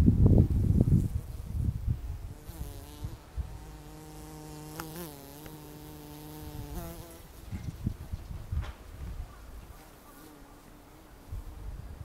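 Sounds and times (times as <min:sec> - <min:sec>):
bee buzzing: 0:00.8 - 0:07.8, 0:10.0 - 0:11.6.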